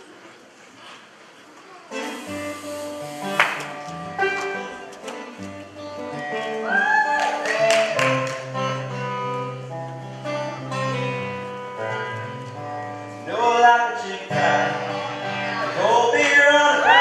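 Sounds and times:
acoustic guitar strumming: 0:01.9 - 0:06.7, 0:08.1 - 0:16.8.

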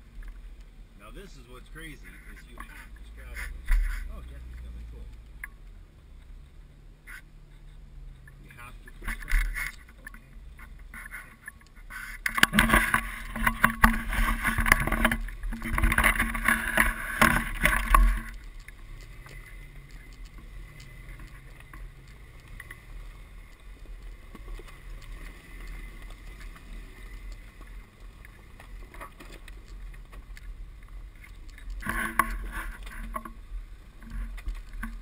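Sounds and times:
low engine rumble: 0:00.0 - 0:35.0
rocks crunching and knocking: 0:08.2 - 0:35.0.

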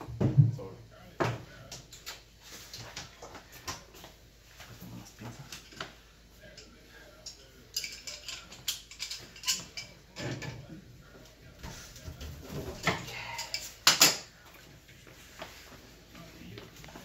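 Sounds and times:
tools clicking and clattering: 0:07.2 - 0:10.6.

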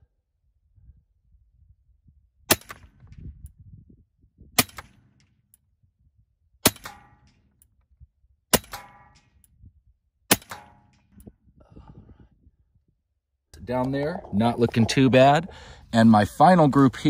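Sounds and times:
air rifle shots cracking: 0:02.5 - 0:03.0, 0:04.6 - 0:05.4, 0:06.6 - 0:07.5, 0:08.5 - 0:09.4, 0:10.3 - 0:11.1.

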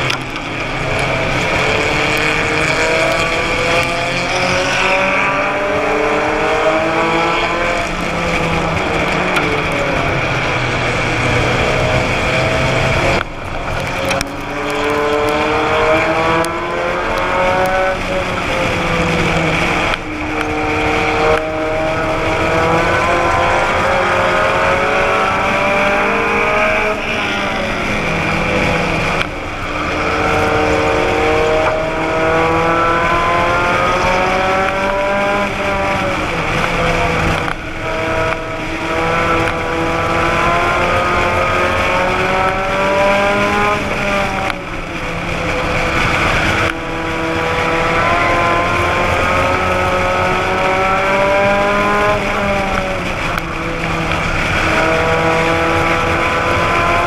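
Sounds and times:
race car engine accelerating: 0:00.0 - 0:57.0.

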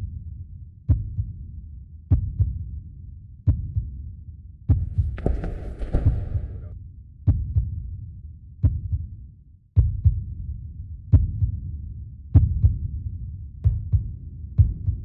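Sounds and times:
heartbeat thumps: 0:04.7 - 0:06.7, 0:13.6 - 0:15.0.

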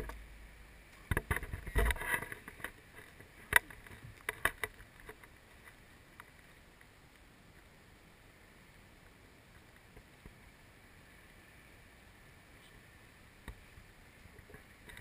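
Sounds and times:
faint outdoor hush: 0:00.0 - 0:15.0
rustling and reel clicking: 0:00.9 - 0:06.9, 0:14.2 - 0:15.0.

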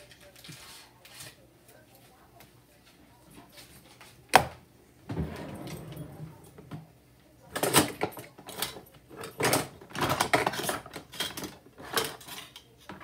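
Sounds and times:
kitchen items clattering: 0:05.1 - 0:06.9, 0:07.5 - 0:13.0.

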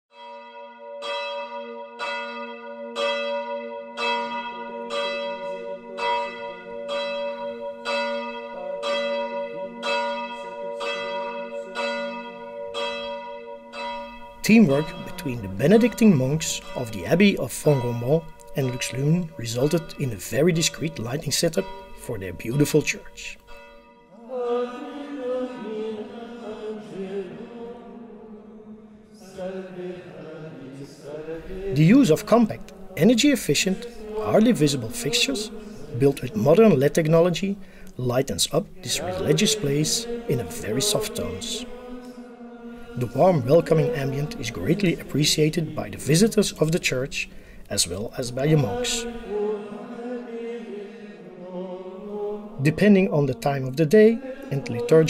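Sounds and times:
church bell ringing: 0:00.1 - 0:25.8, 0:31.3 - 0:42.1, 0:42.7 - 0:49.4
men singing plainchant in unison: 0:24.1 - 0:37.1, 0:38.8 - 0:46.4, 0:47.8 - 0:55.0.

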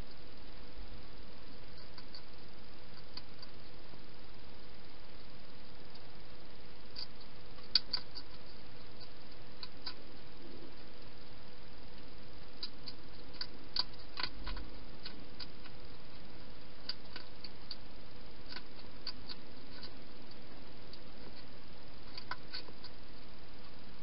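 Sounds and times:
steady background hiss: 0:00.0 - 0:24.0
hedgehog chewing clicks: 0:07.0 - 0:10.0, 0:12.5 - 0:16.2, 0:16.8 - 0:17.9, 0:18.5 - 0:23.0.

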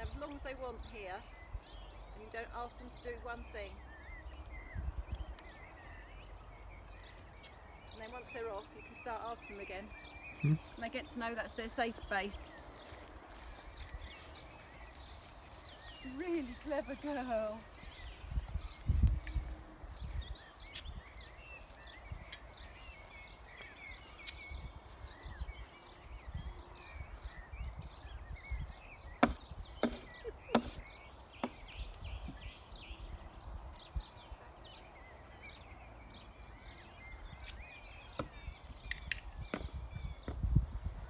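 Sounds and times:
birds chirping: 0:00.0 - 0:41.0
wind rumble on microphone: 0:03.6 - 0:06.0, 0:11.9 - 0:31.0, 0:36.2 - 0:41.0
hooves knocking on wooden board: 0:29.2 - 0:30.8.

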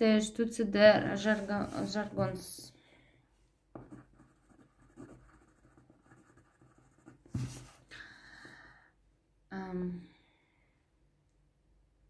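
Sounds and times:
breath: 0:02.7 - 0:03.4, 0:07.9 - 0:09.0
pen scratching on paper: 0:03.8 - 0:07.8.

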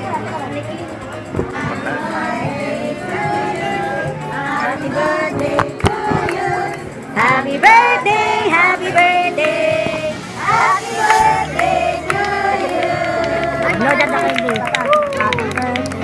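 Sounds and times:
group singing a celebration song: 0:00.0 - 0:14.5.

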